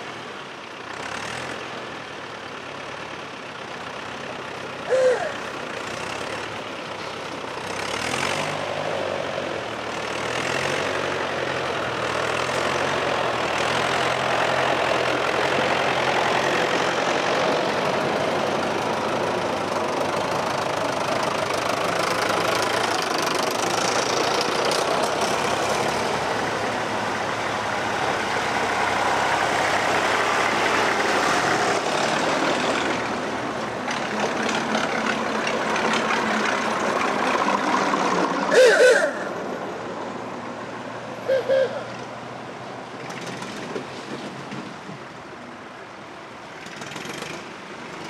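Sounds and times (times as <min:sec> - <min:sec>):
tractor engines clattering: 0:00.0 - 0:48.0.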